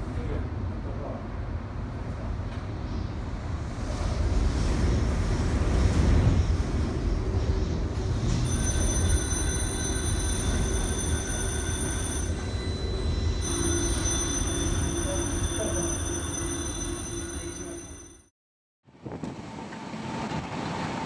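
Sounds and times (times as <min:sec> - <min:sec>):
high bell-like ringing: 0:08.4 - 0:18.3.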